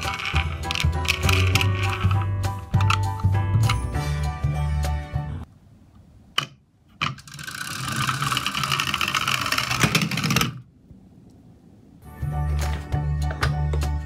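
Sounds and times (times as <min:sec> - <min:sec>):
toy truck clicks: 0:00.0 - 0:02.2
toy truck gear drive whirring: 0:00.0 - 0:03.1, 0:07.1 - 0:10.6
background music: 0:00.0 - 0:05.5, 0:12.0 - 0:14.0.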